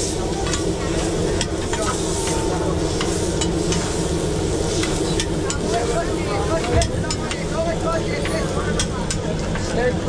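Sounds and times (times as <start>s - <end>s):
food sizzling: 0.0s - 8.8s.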